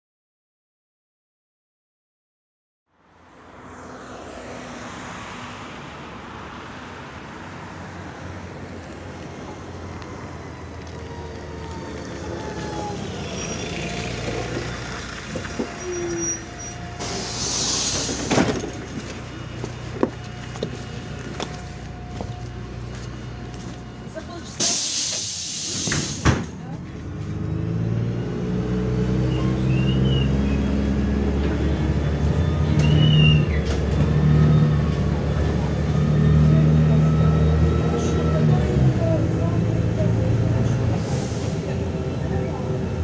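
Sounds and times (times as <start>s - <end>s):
street traffic: 2.9s - 43.0s
bus engine idling: 8.1s - 27.4s, 29.0s - 43.0s
compressed air hiss: 17.0s - 18.3s, 24.6s - 26.3s.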